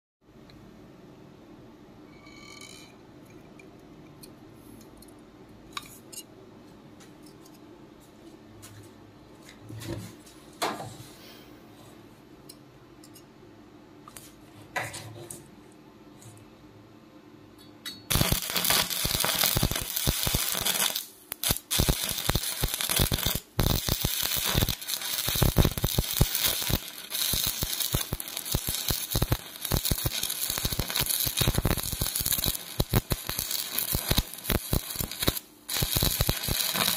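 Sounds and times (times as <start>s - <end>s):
welding arc crackling: 18.1s - 36.9s.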